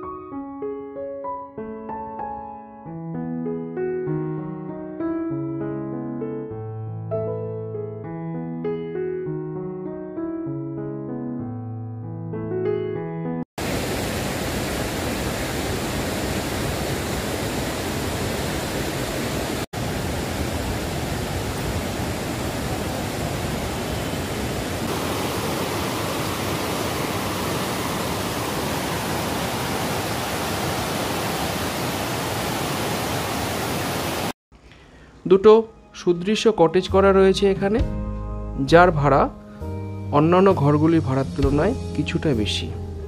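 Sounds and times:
river rushing through rapids: 13.6s - 34.3s.

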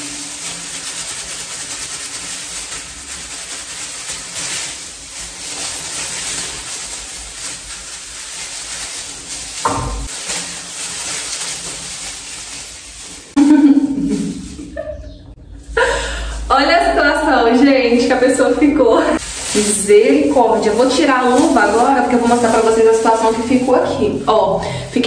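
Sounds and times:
hands rubbing dye through hair: 0.0s - 25.0s
brief thump: 9.7s - 10.1s.

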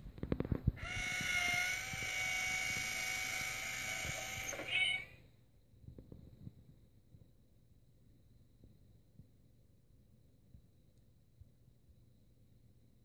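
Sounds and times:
small motor whirring: 0.8s - 5.1s.

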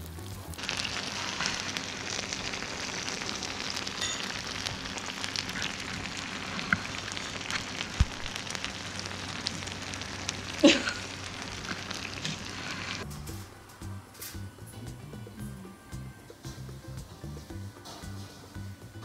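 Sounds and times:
crackles and pops: 0.0s - 13.1s
meat sizzling on a hot plate: 0.0s - 13.1s.

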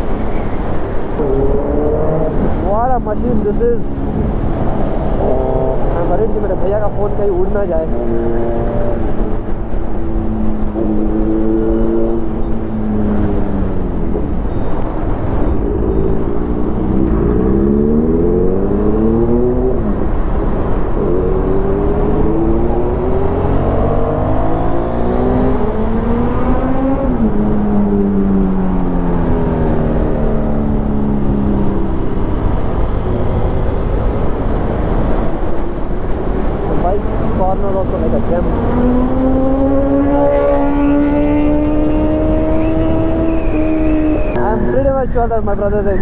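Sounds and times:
motorcycle engine accelerating: 10.2s - 44.8s.

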